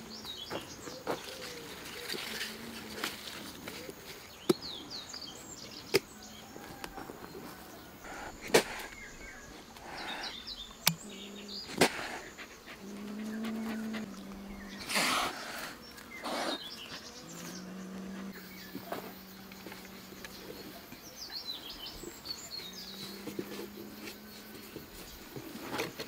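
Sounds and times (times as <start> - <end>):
small birds chirping: 0.0 - 26.0
sharp clicks: 10.8 - 11.0.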